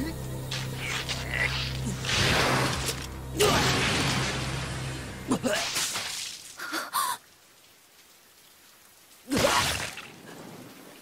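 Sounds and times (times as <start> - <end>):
rainfall hiss: 3.1 - 11.0.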